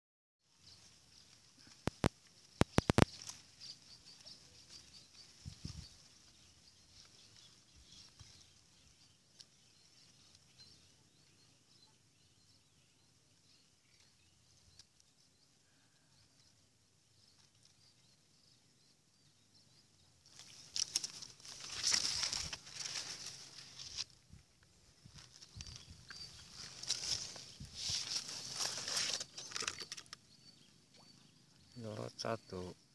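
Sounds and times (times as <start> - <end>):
leaves rustling against microphone: 0.4 - 18.4, 20.2 - 30.9.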